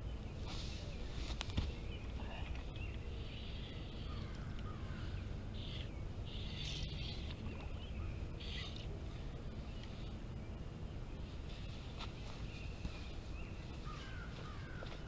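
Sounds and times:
short high bird calls: 3.1s - 7.8s, 8.4s - 8.9s.

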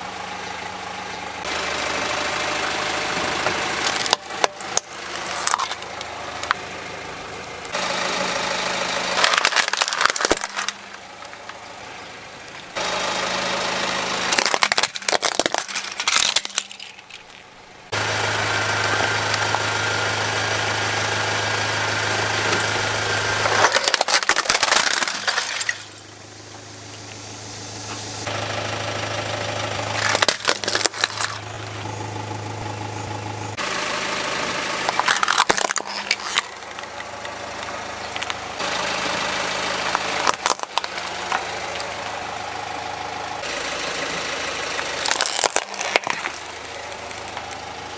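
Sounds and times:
car engine idling: 0.0s - 47.9s
plastic toys cracking under tyre: 3.8s - 6.6s, 9.1s - 11.6s, 14.3s - 17.6s, 23.4s - 26.0s, 29.9s - 31.5s, 34.8s - 38.4s, 39.8s - 41.5s, 44.8s - 47.6s.

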